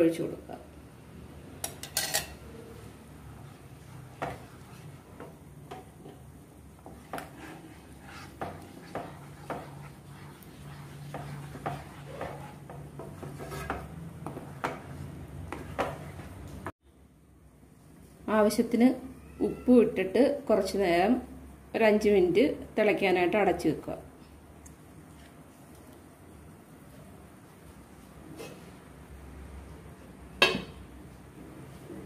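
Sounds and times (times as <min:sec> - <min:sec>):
wooden spatula scraping a pan: 0:03.7 - 0:06.2, 0:06.8 - 0:16.7.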